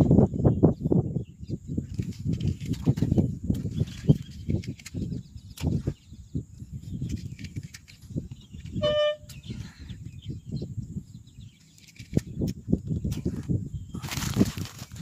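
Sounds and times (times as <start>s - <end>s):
wind buffeting microphone: 0.0s - 15.0s
brief steady tone: 8.8s - 9.4s.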